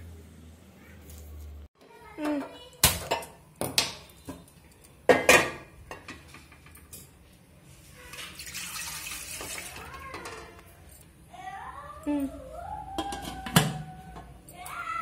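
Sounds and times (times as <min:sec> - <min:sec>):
water pouring into pot: 0:08.1 - 0:10.0.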